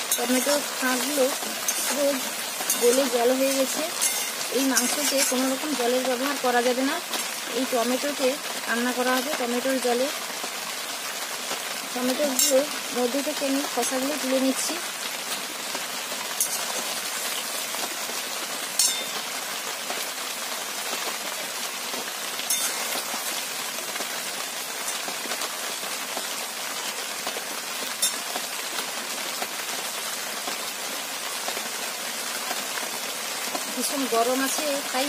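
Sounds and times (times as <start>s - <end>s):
food sizzling in a pan: 0.0s - 35.0s
metal spatula clinking on pan: 2.7s - 5.6s, 16.4s - 16.9s, 18.8s - 19.2s, 22.5s - 22.9s.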